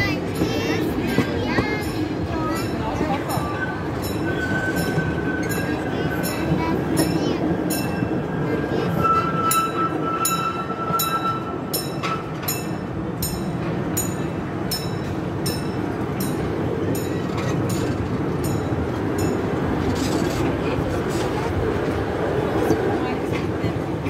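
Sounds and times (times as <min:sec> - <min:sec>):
train rolling rumble: 0:00.0 - 0:24.0
wheels clicking over rail joints: 0:11.8 - 0:22.1.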